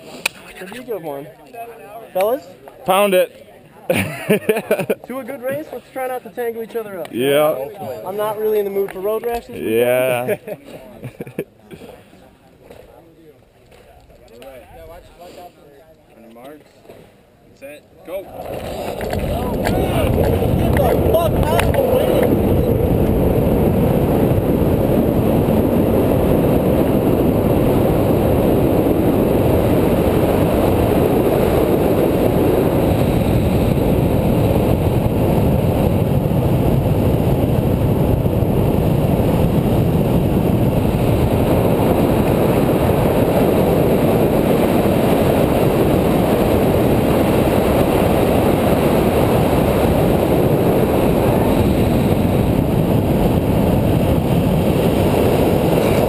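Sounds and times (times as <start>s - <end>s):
skateboard wheels rolling on asphalt: 18.0s - 56.0s
wind buffeting microphone: 18.1s - 56.0s.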